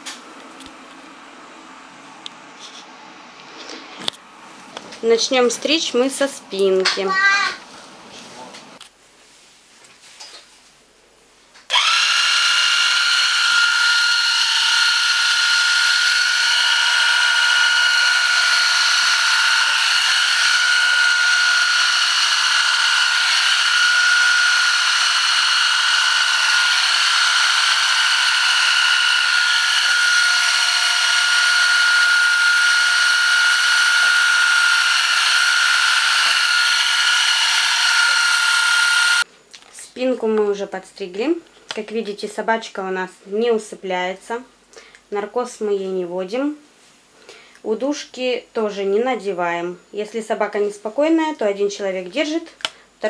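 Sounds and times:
electric hair clipper whining: 11.7s - 39.3s.

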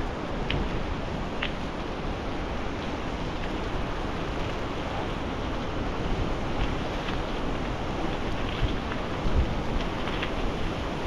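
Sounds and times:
wind rushing over microphone: 0.0s - 11.0s
bike tyres on gravel: 2.6s - 11.0s.

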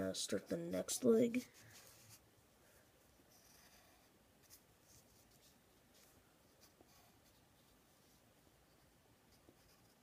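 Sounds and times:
pencil scratching on paper: 3.3s - 10.0s.

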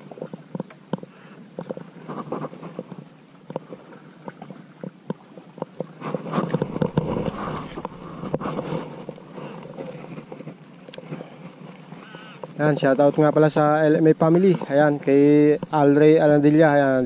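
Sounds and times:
rustling and scraping of gear: 0.1s - 4.0s, 5.6s - 16.8s
sharp clicks of fishing gear: 4.8s - 12.6s.

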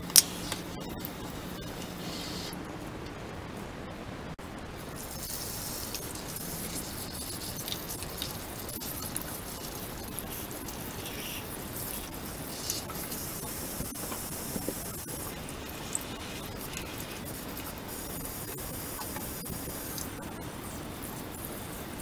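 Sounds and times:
water splashing in a washbasin: 5.0s - 22.0s.

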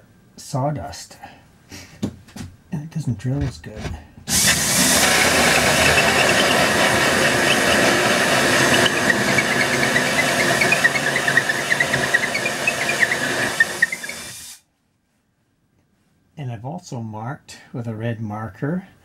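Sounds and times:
drill hole saw grinding wood: 4.3s - 14.6s
rapid squeaks of saw teeth: 5.2s - 14.5s.

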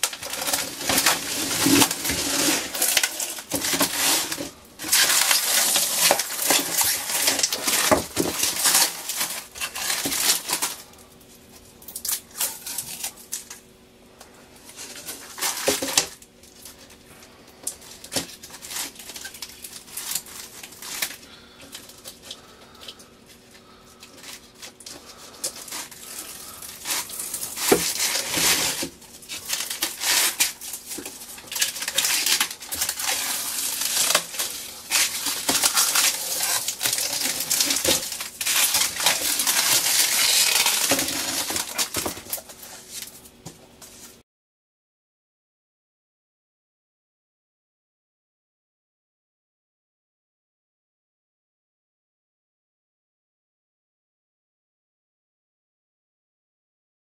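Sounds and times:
plastic film crinkling and tearing: 0.0s - 13.7s, 14.6s - 44.2s.

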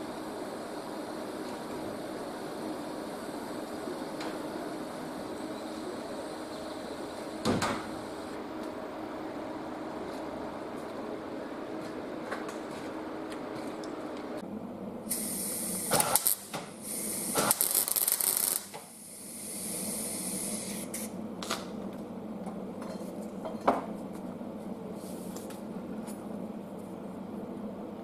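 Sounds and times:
welding arc crackling hiss: 0.0s - 8.4s, 15.0s - 21.2s
steady low hum: 0.0s - 28.0s.

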